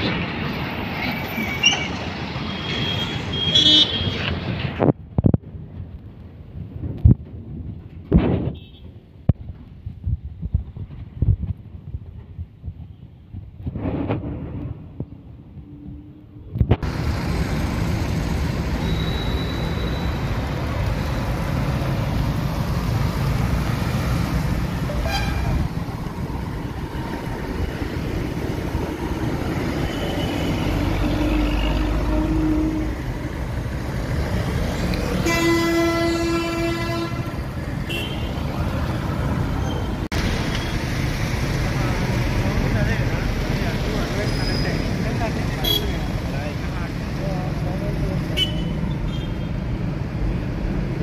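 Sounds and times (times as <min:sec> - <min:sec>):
highway traffic: 0:00.0 - 0:51.0
vehicle horn: 0:02.8 - 0:04.2, 0:25.0 - 0:25.6, 0:35.2 - 0:38.4.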